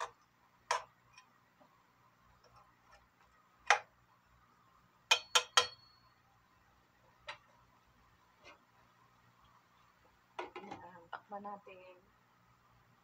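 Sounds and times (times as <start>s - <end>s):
metal spatula knocking on pan: 5.1s - 5.9s.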